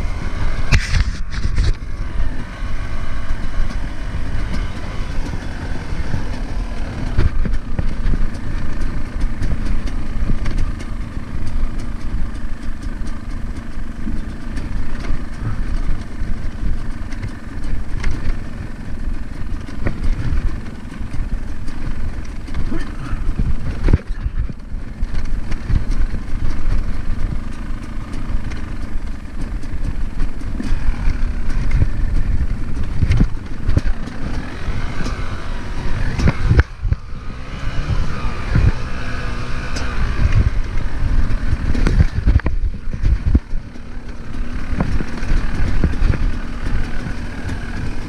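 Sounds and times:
dirt bike engine revving: 0.0s - 48.0s
knocks and thumps from bumps: 19.2s - 48.0s.

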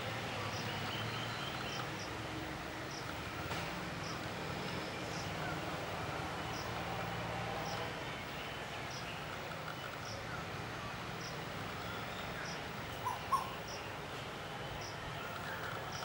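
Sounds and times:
distant bird chirps: 0.4s - 10.5s, 11.1s - 14.0s
short loud bird calls: 11.9s - 13.9s.

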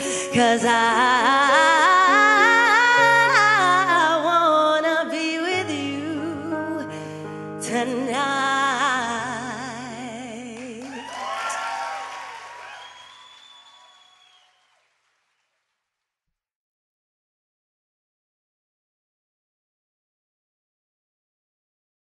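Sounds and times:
woman singing a ballad: 0.0s - 11.4s.

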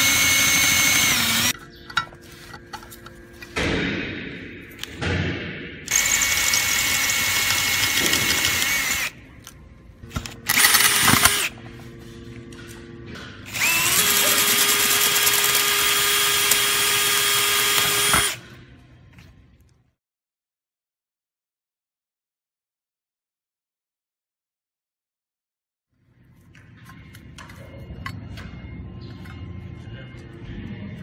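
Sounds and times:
cordless drill running: 0.0s - 1.5s, 5.9s - 9.2s, 10.4s - 11.6s, 13.5s - 18.4s.

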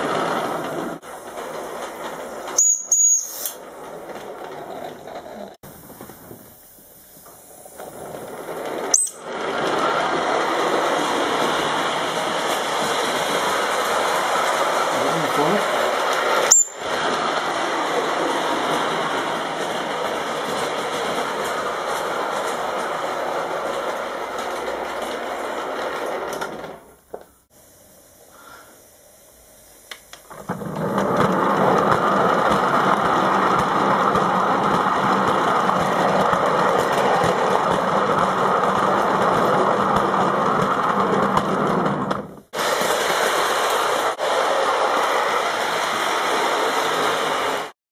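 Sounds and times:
steam locomotive chuffing: 0.0s - 47.8s.

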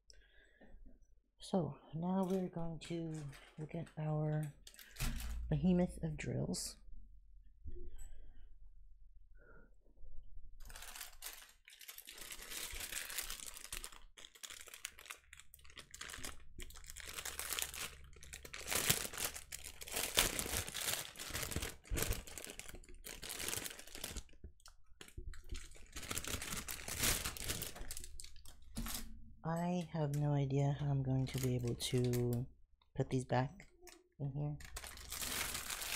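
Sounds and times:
plastic wrap crinkling: 2.2s - 5.3s, 10.6s - 29.2s, 31.1s - 32.4s, 34.6s - 35.9s.

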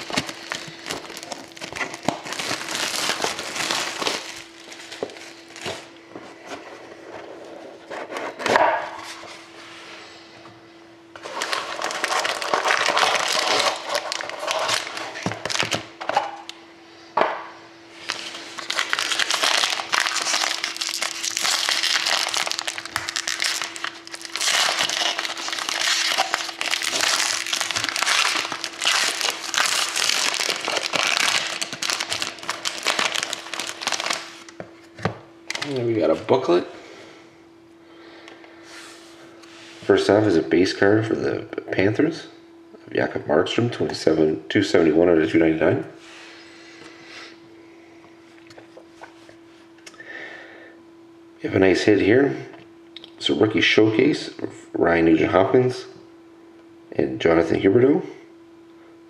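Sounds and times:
foil wrapper crinkling and tearing: 0.0s - 5.9s, 11.2s - 15.9s, 18.0s - 34.6s, 35.5s - 35.9s.

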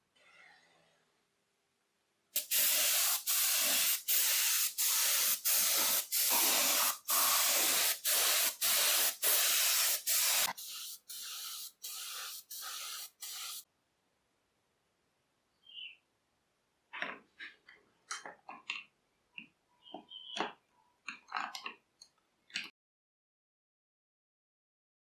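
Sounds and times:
aerosol spray can hissing: 2.4s - 13.6s.

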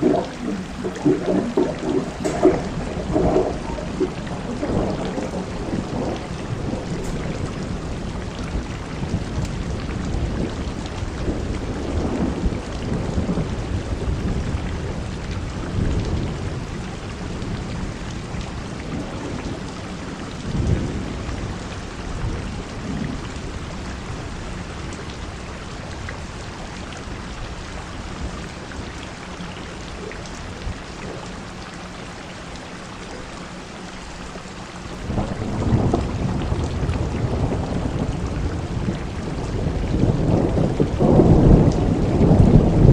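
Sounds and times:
low rumbling: 0.0s - 8.4s
gusting wind: 0.0s - 15.6s
heavy rain pouring: 0.0s - 42.9s.

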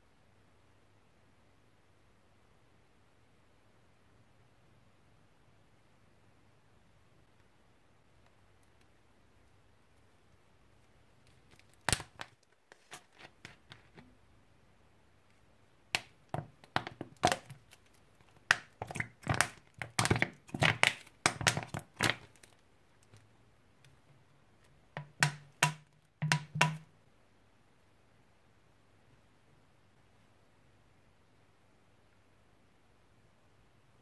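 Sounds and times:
plastic bottle crackling: 11.2s - 14.1s, 16.0s - 23.2s, 25.0s - 26.8s.

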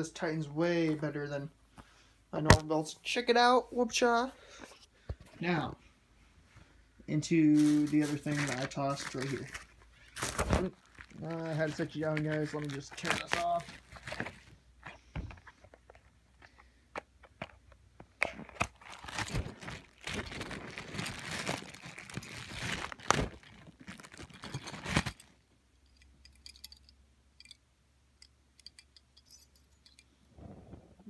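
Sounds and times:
packaging tearing and crumpling: 7.6s - 14.5s, 18.2s - 25.3s.

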